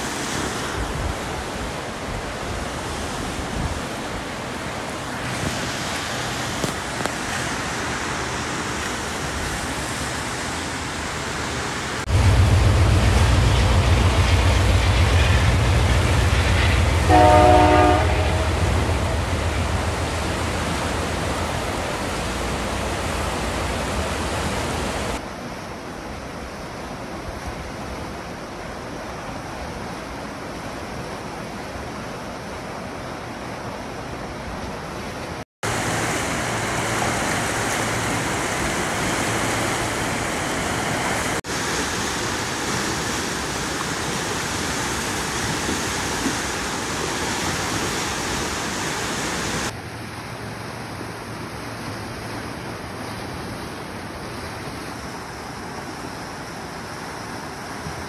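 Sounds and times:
river rushing over rapids: 0.0s - 58.0s
low rumble: 12.1s - 17.1s.

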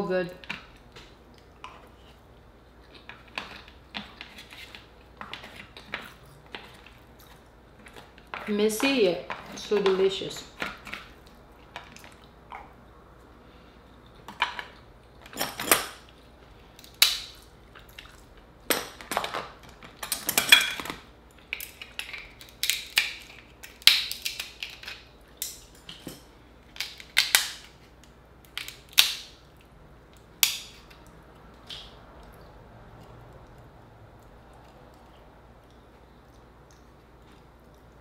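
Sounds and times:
crab shell cracking: 16.7s - 32.4s.

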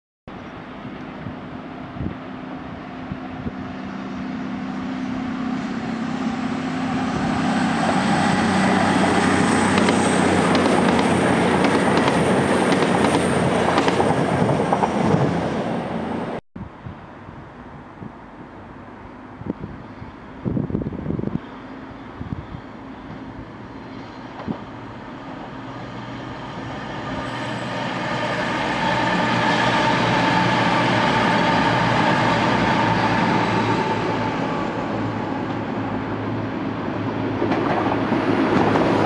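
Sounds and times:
diesel train engine drone: 0.3s - 39.0s
train rumble: 0.5s - 39.0s
train wheels clicking: 9.0s - 15.0s.

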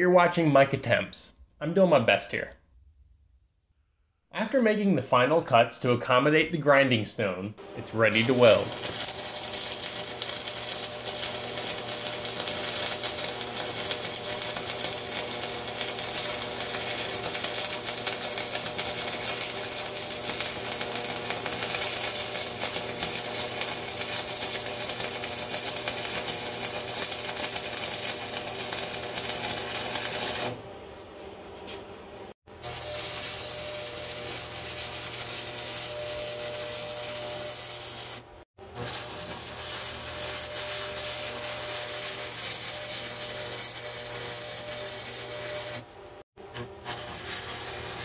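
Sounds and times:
welding arc crackling: 7.8s - 30.6s, 32.5s - 45.9s, 46.5s - 48.0s.

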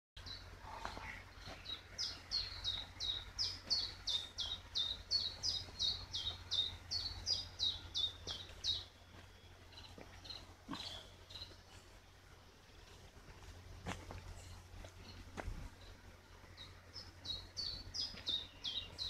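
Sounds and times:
low steady rumble: 0.2s - 19.0s
songbird singing: 0.2s - 19.0s.

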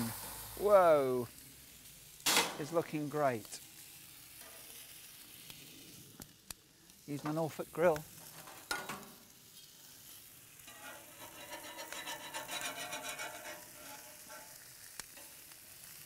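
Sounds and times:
sausages sizzling on grill: 0.0s - 16.0s
metal tongs scraping: 10.7s - 15.5s.

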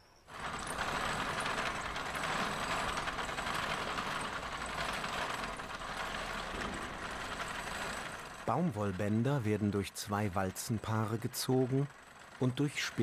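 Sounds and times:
spinning machine clattering: 0.3s - 13.0s.

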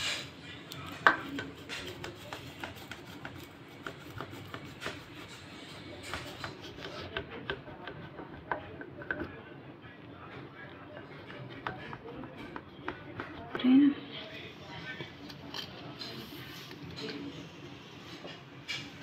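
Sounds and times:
knife scraping on metal pan: 1.1s - 7.2s.

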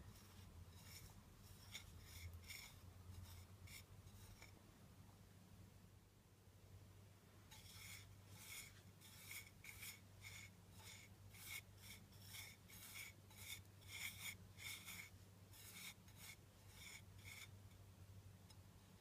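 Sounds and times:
fingers scraping spice on plate: 0.0s - 4.6s, 7.5s - 17.5s.

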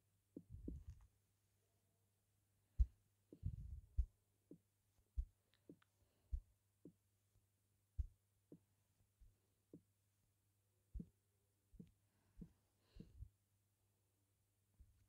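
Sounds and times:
steady low hum: 2.7s - 9.9s.

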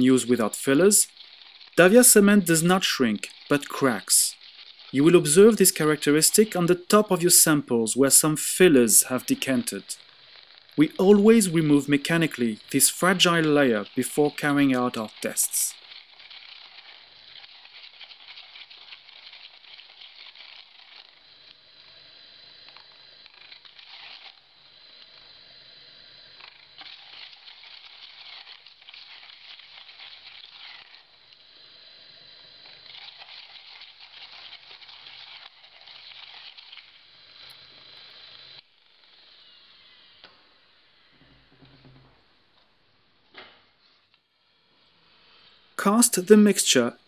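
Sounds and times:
faint high whine: 0.0s - 17.5s, 39.0s - 42.3s
vibrating shaker gritty hiss and rattle: 0.0s - 42.2s, 43.7s - 47.0s.

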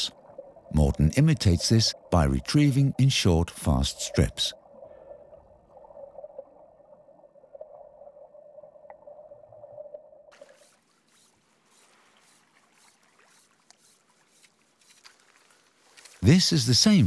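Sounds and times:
fly line swishing: 10.4s - 16.2s.

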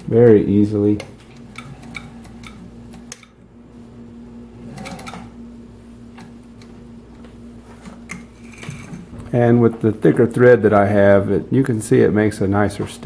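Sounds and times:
steady low hum: 0.0s - 13.0s
sewing machine needle strokes: 4.6s - 5.3s.

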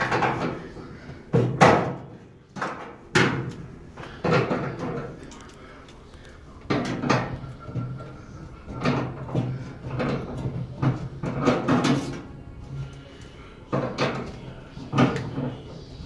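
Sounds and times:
metal clunks and scrapes: 6.7s - 12.3s.

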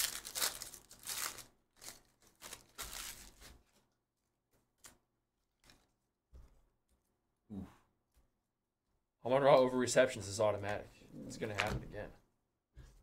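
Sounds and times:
foil wrapper crinkling and tearing: 0.0s - 3.7s.

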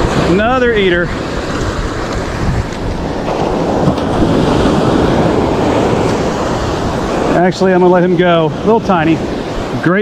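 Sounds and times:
waves breaking on beach: 0.0s - 10.0s
wind buffeting microphone: 0.0s - 10.0s.

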